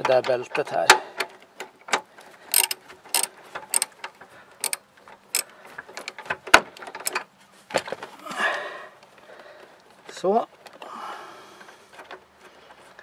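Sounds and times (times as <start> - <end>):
wrench clicking on bolt: 0.2 - 4.0, 4.6 - 6.2.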